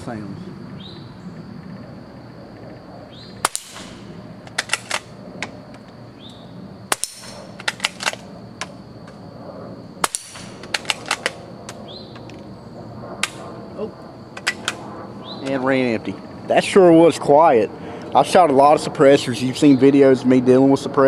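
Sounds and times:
quiet rifle pops: 13.2 - 13.4.

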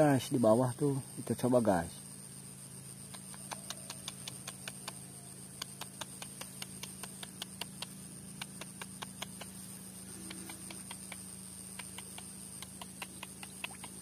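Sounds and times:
steady low hum: 0.0 - 14.0
small sharp clicks: 3.0 - 14.0.

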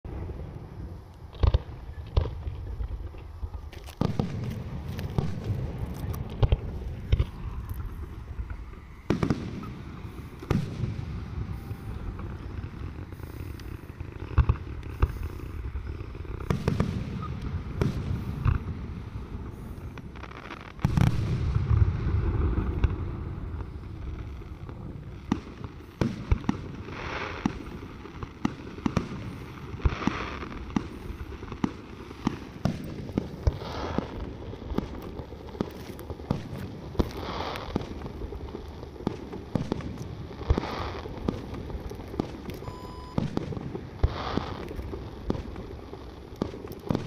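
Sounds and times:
firework bangs and crackles: 0.0 - 47.0
short hissing bursts: 9.1 - 20.8, 35.7 - 38.0, 43.9 - 45.1
heavy rumbling boom: 20.8 - 25.1.

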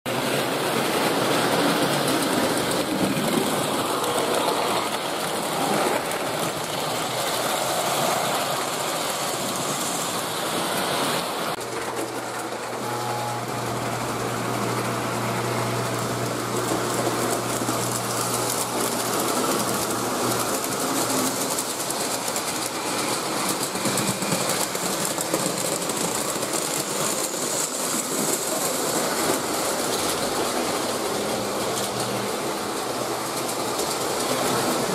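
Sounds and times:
wheels clattering on rails: 0.1 - 12.9, 13.5 - 34.9
electric motors whirring: 12.7 - 20.6.

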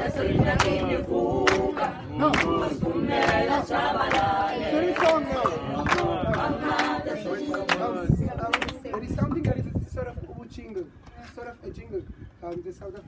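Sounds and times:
group singing unaccompanied: 0.0 - 9.4
hand claps: 1.4 - 4.3, 4.9 - 9.5.

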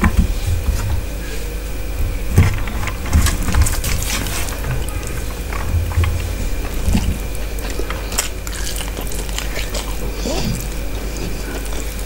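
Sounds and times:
steady low hum: 0.0 - 12.0
fingers squishing wet food: 6.0 - 12.0.

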